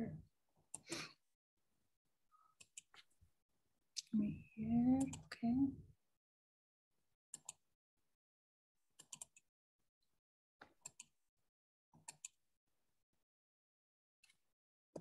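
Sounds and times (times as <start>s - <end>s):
computer mouse clicks: 5.0s - 5.3s, 7.4s - 7.6s, 9.0s - 9.4s, 10.6s - 11.1s, 12.0s - 12.4s.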